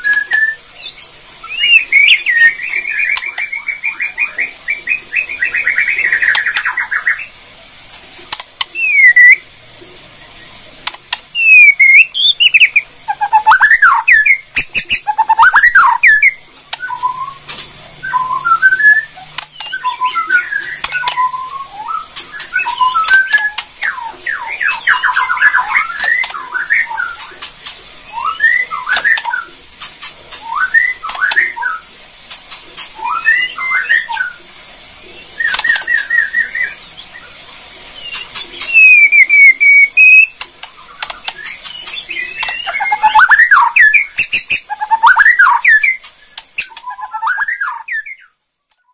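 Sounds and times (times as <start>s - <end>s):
bird singing whistled phrases: 0.0s - 7.3s, 8.7s - 9.4s, 11.3s - 27.4s, 28.1s - 29.5s, 30.4s - 31.9s, 33.0s - 34.4s, 35.1s - 37.3s, 38.0s - 48.9s
bird fast chattering: 8.4s - 9.4s, 10.8s - 34.0s, 38.0s - 48.2s
bird sharp clicking notes: 10.8s - 17.8s, 18.7s - 21.4s, 38.1s - 47.3s.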